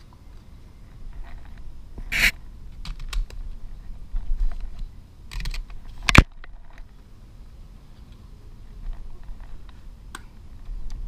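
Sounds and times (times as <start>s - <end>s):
gear rubbing against camera: 1.1s - 2.4s.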